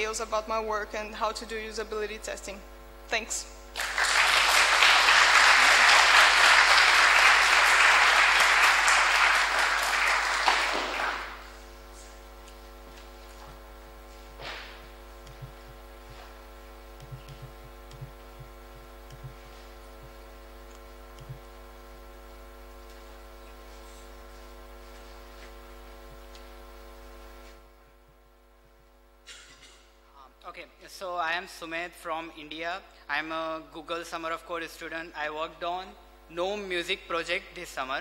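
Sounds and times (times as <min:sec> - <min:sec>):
low steady hum: 0:00.0 - 0:38.0
audience applauding: 0:03.8 - 0:11.6.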